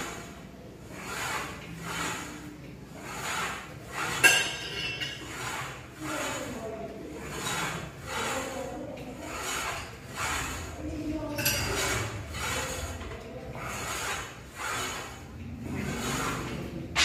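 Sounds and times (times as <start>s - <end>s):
cable running through pulleys: 0.0s - 17.0s.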